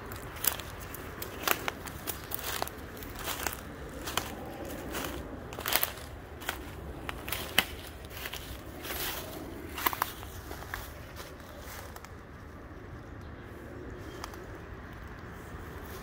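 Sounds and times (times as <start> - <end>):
footsteps crunching on dry leaves: 0.0 - 12.3.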